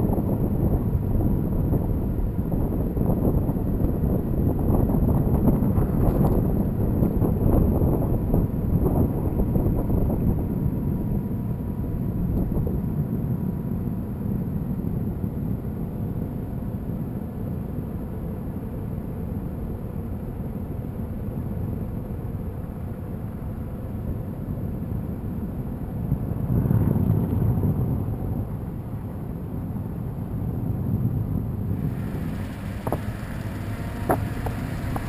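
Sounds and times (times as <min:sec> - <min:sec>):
wind buffeting microphone: 0:00.0 - 0:17.0, 0:24.9 - 0:35.0.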